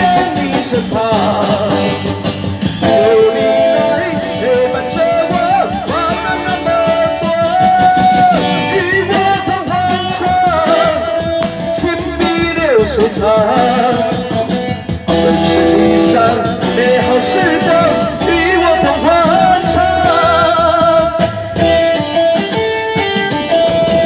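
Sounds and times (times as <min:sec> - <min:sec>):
amplified instrumental accompaniment: 0:00.0 - 0:24.0
person singing long notes: 0:15.1 - 0:21.4.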